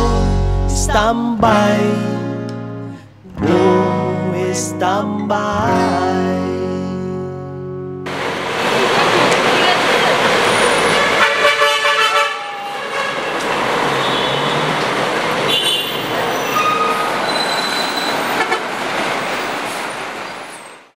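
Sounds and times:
traffic noise: 0:08.1 - 0:21.0
vehicle horn honking: 0:10.4 - 0:14.8, 0:15.4 - 0:18.7.

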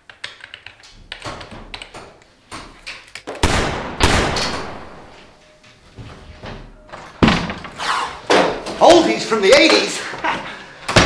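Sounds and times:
door banging: 0:06.5 - 0:09.0.

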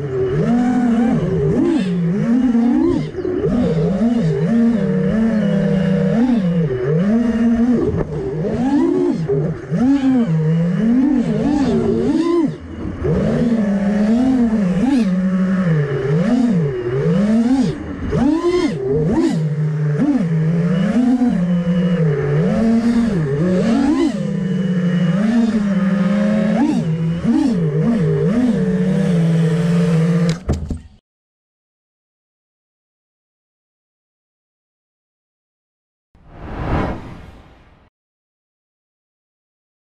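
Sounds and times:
drone motors whining: 0:00.0 - 0:30.6.

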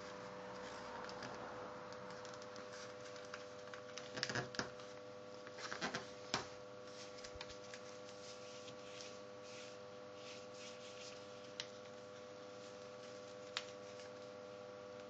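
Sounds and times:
faint steady hum: 0:00.0 - 0:15.0
paper rustling and crinkling: 0:02.1 - 0:14.4
paper crisp snap: 0:12.7 - 0:14.2.

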